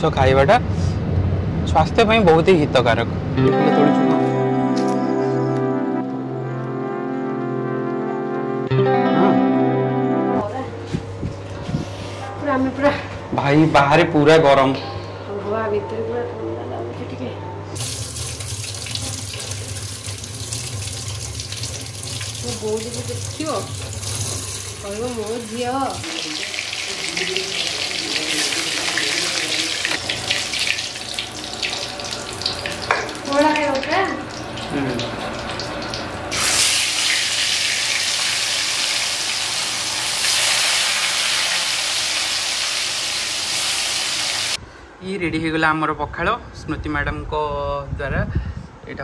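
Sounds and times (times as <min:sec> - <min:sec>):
fish sizzling in hot oil: 0:17.8 - 0:44.6
tap water splashing into sink: 0:32.4 - 0:33.9.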